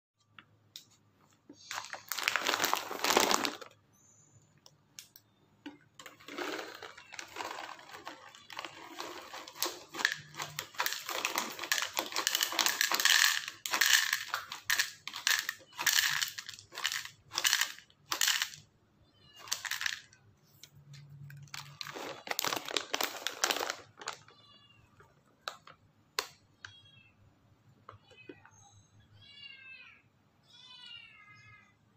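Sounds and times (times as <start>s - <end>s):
kibble rattling on plastic lid: 1.7s - 3.7s, 6.0s - 18.6s, 19.4s - 20.1s, 21.4s - 24.3s
plastic bag rustling: 1.7s - 3.7s, 6.0s - 18.4s, 21.4s - 24.3s.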